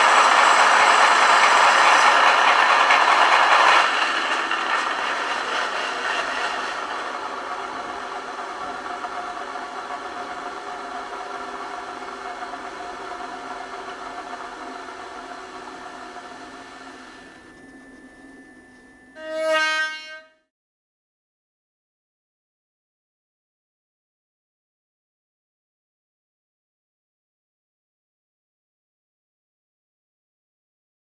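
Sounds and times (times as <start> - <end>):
model locomotive engine running: 0.0 - 19.5
locomotive horn blast: 19.2 - 20.5.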